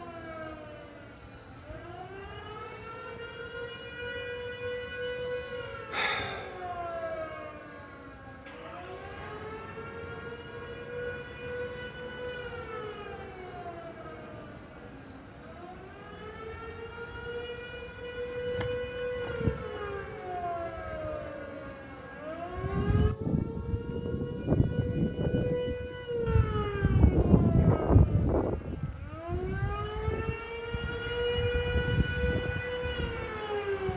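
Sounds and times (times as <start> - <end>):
siren wailing: 0.0 - 33.9
rumbling noise on microphone: 22.7 - 32.6.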